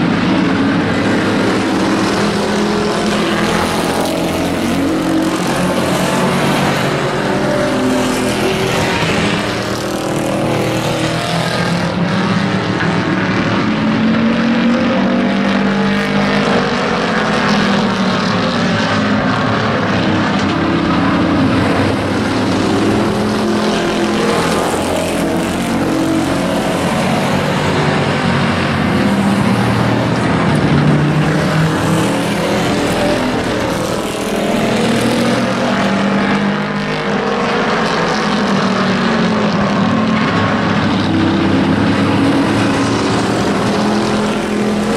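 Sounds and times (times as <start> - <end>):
model race truck engines: 0.0 - 44.9.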